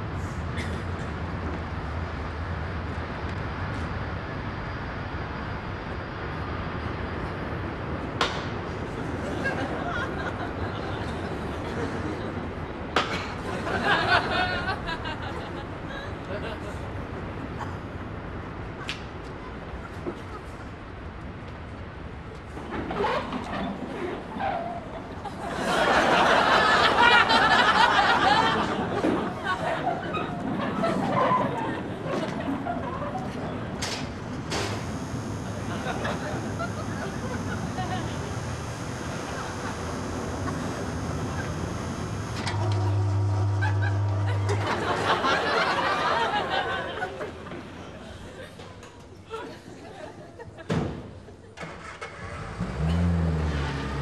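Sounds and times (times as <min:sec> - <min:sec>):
studio audience laughing: 0:09.2 - 0:12.4, 0:13.4 - 0:16.8, 0:25.2 - 0:33.3, 0:35.4 - 0:48.6
low vehicle hum: 0:34.1 - 0:46.5.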